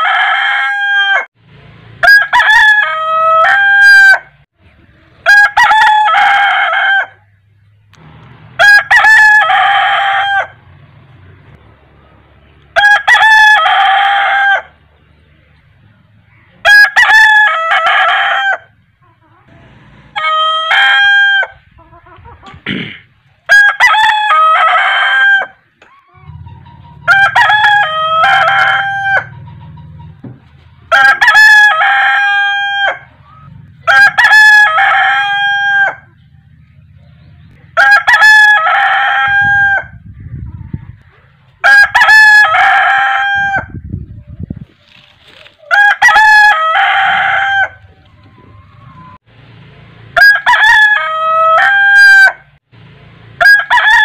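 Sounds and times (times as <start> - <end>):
rooster crowing: 0.0 - 1.3, 2.0 - 4.3, 5.2 - 7.2, 8.6 - 10.6, 12.8 - 14.8, 16.6 - 18.8, 19.5 - 21.6, 23.5 - 30.0, 30.9 - 36.2, 37.8 - 40.0, 41.6 - 43.8, 45.7 - 49.2, 50.2 - 52.5, 53.4 - 54.0.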